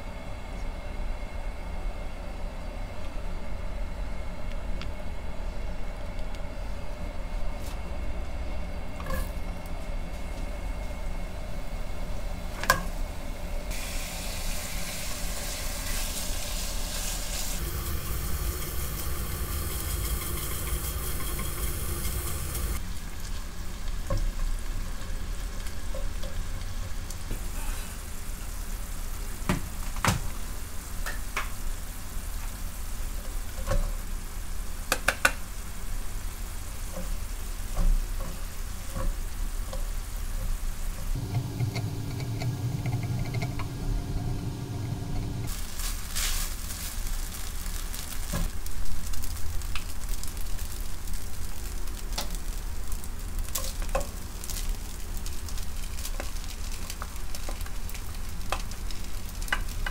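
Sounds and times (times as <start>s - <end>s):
low hum with steady tones: 0.0s - 47.2s
food sizzling in a pan: 13.7s - 59.9s.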